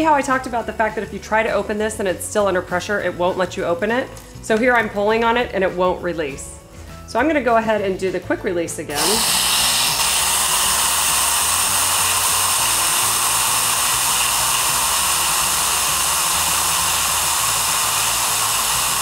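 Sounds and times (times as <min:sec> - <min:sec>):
steam hissing from pressure cooker: 0:09.0 - 0:19.0.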